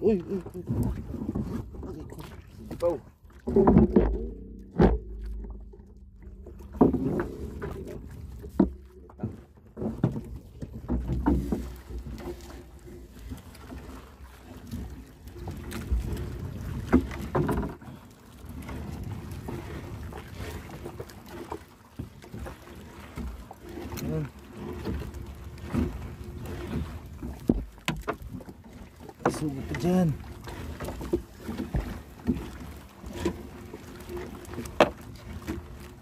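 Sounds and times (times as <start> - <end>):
knocks and thuds against hull: 0.5 - 14.0, 14.6 - 18.0, 18.6 - 36.0
low steady rumble: 3.8 - 9.2.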